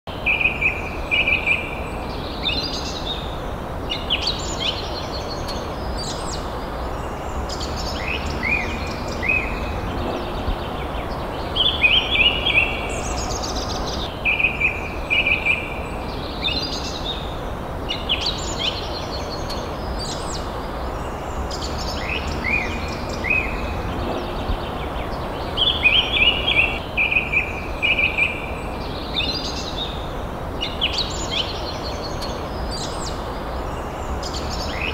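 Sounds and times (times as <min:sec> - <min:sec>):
birds chirping and singing: 0:00.1 - 0:34.9
low background noise: 0:00.1 - 0:34.9.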